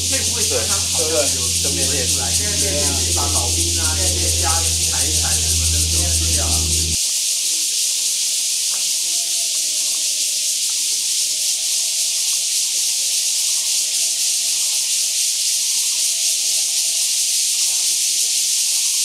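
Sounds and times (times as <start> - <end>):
cicadas buzzing: 0.0 - 7.0.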